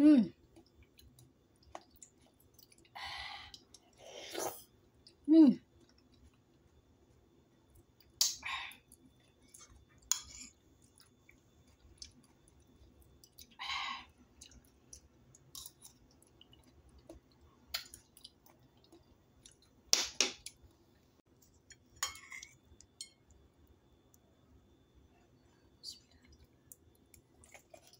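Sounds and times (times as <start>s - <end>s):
quiet chewing: 0.4s - 8.2s, 8.8s - 19.8s, 25.3s - 27.9s.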